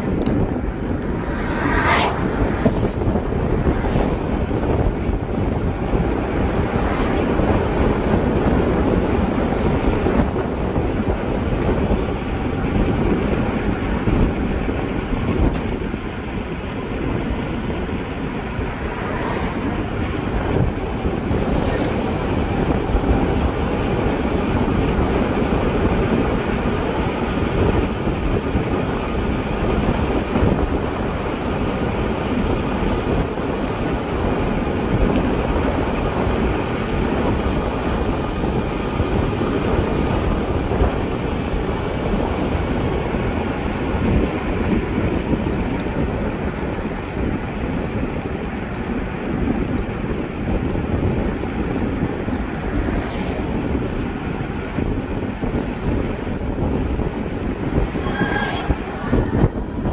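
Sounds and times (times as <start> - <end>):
tyres rolling on asphalt: 0.0 - 59.9
wind buffeting microphone: 0.0 - 59.9.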